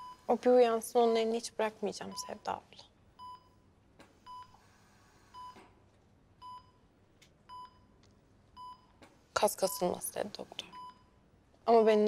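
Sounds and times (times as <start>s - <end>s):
patient monitor beeping: 0.0s - 0.4s, 2.0s - 2.5s, 3.2s - 3.6s, 4.2s - 4.7s, 5.3s - 5.6s, 6.4s - 6.9s, 7.5s - 8.0s, 8.6s - 11.2s.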